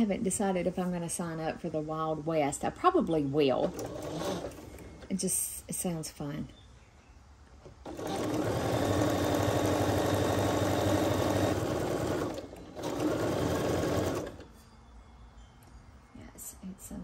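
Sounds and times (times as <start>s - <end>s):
sewing machine stitching: 3.6s - 5.1s, 7.8s - 14.4s.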